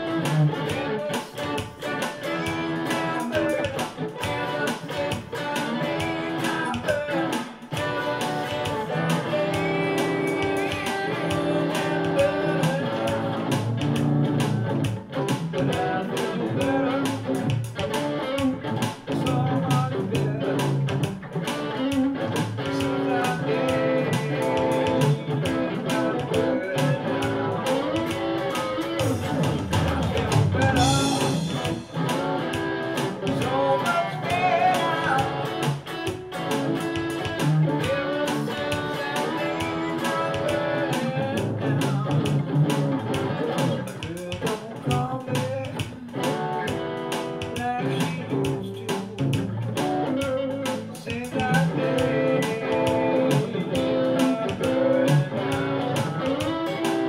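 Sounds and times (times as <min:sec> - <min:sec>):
electric guitar gospel shuffle: 0:00.0 - 0:57.0
steady beat: 0:00.0 - 0:57.0.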